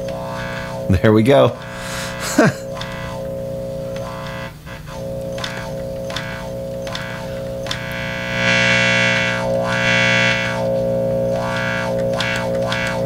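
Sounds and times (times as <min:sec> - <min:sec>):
distorted amp tone with wah sweeps: 0:00.0 - 0:13.0.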